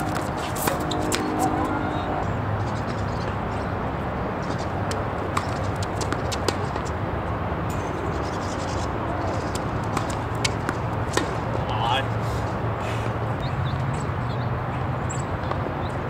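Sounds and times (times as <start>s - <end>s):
low hum: 0.0s - 2.5s
tennis ball knocks: 9.5s - 11.5s.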